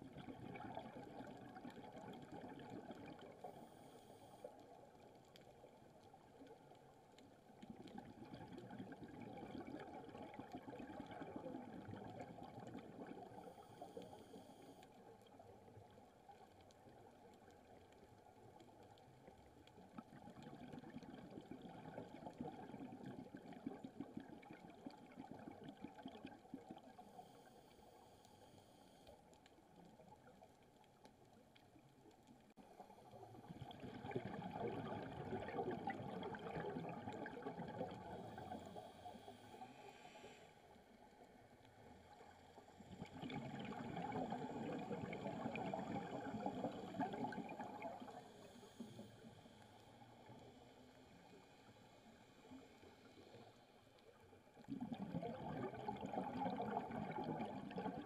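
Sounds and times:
bubbling exhaled air underwater: 0.0s - 4.5s, 7.7s - 14.4s, 19.9s - 27.2s, 33.1s - 39.8s, 42.8s - 49.5s, 54.5s - 58.0s
faint inhalation hiss: 3.4s - 4.8s, 27.0s - 29.3s, 38.1s - 41.5s, 48.1s - 53.9s.

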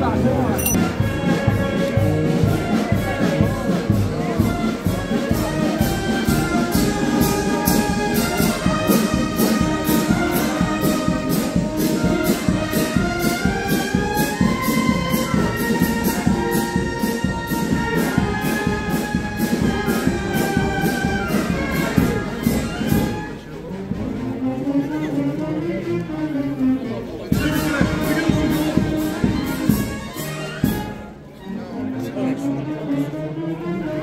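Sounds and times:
brass band playing a march: 0.1s - 34.0s.

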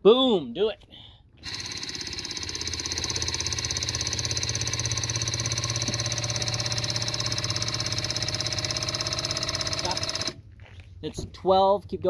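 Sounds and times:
test rig motor pulsing: 1.4s - 10.4s.

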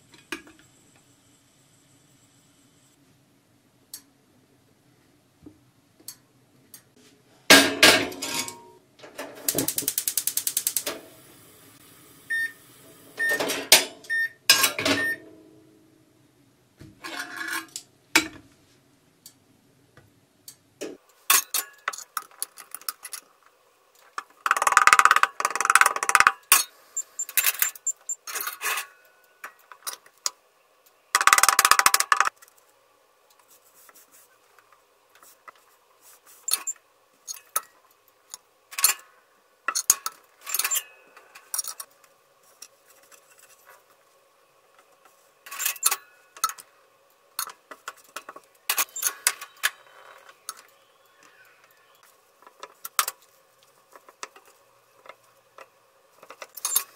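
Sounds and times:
iron pan clanking on metal grate: 7.5s - 9.4s
rapid even clicking: 9.5s - 10.9s.

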